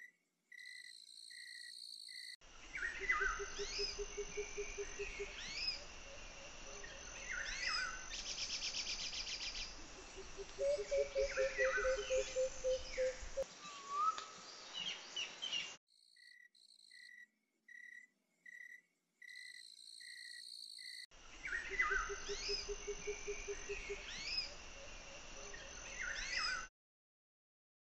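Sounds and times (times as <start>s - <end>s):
birds chirping and whistling: 7.2s - 15.7s, 21.4s - 24.5s.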